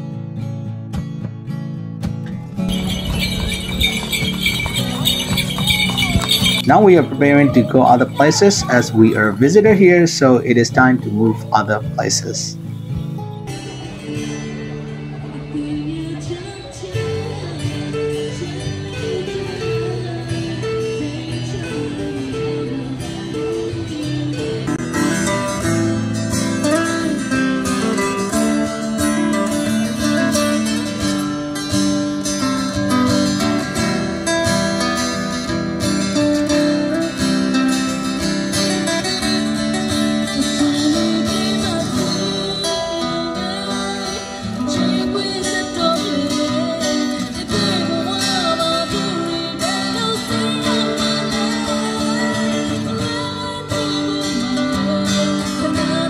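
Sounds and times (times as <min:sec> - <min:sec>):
acoustic guitars playing: 0:00.0 - 0:56.0
woman singing into a microphone: 0:15.2 - 0:25.8, 0:38.8 - 0:56.0.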